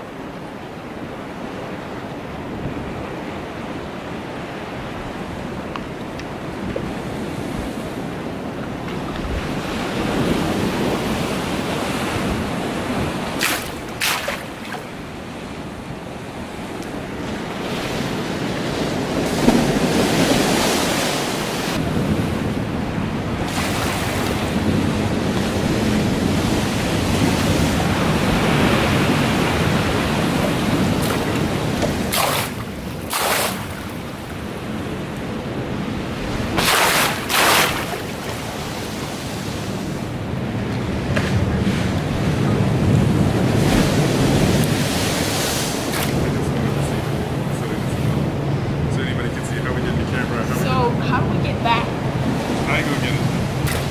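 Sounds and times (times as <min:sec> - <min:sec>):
wind buffeting microphone: 0:00.0 - 0:53.9
pool water sloshing and lapping: 0:12.8 - 0:15.6, 0:23.4 - 0:24.6, 0:28.3 - 0:34.5, 0:36.5 - 0:39.5, 0:53.5 - 0:53.9.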